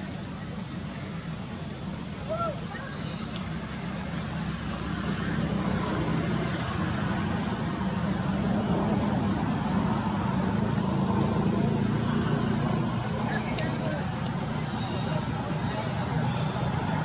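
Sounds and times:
low rumble of engine traffic: 0.0 - 17.0.

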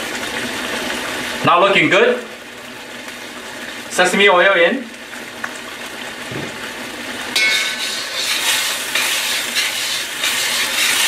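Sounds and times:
sauce simmering in a wok: 0.0 - 11.0
metal spoon scraping a wok: 7.4 - 11.0.

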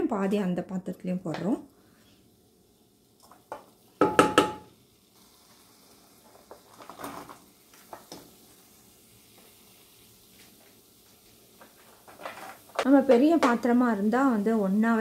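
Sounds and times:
spatula knocking in pan: 3.5 - 4.7.

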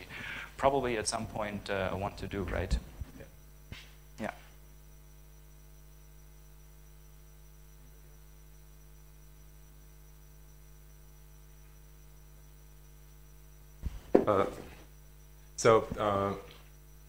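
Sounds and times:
electrical hum with hiss: 0.0 - 17.0.

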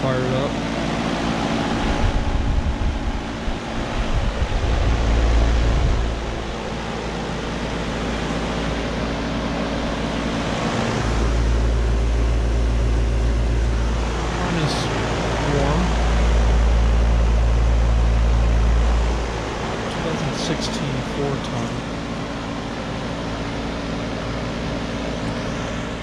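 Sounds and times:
compressor hum: 0.0 - 26.0
heat pump fan blowing: 0.0 - 26.0
wind rumble on microphone: 1.3 - 8.8.

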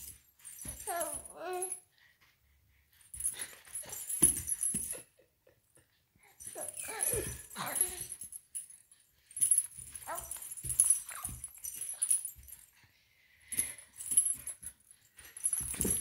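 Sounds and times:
rustling: 13.5 - 16.0.

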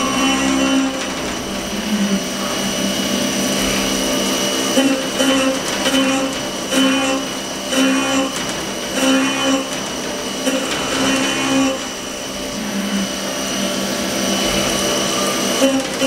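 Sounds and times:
metal cutting noise: 0.0 - 16.0
spindle high whine: 0.0 - 16.0.

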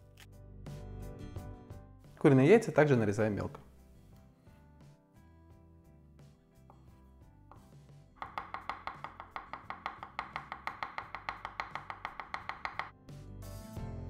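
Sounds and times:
background music: 0.0 - 14.0
knife chopping on wooden board: 7.5 - 12.9.

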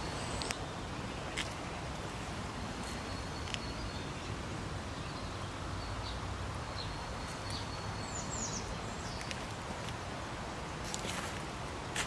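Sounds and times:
bird chirps: 5.0 - 9.4.

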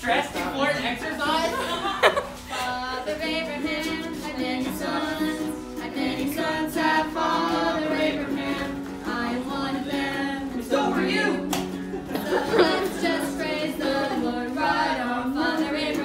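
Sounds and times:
voices singing together: 0.3 - 16.0
strummed ukulele: 2.4 - 16.0.

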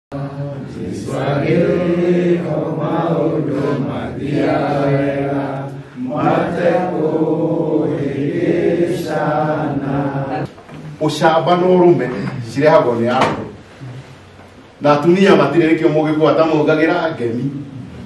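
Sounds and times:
men singing together: 0.1 - 10.5.

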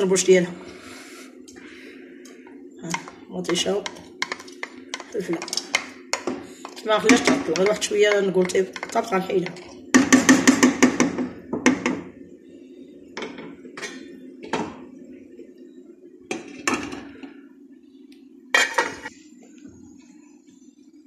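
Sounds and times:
steady low hum: 0.0 - 21.0
pots and utensils clanking: 2.8 - 12.1, 13.2 - 14.8, 16.3 - 17.3, 18.5 - 19.1
wooden spoon knocking on bowl: 2.9 - 12.0.

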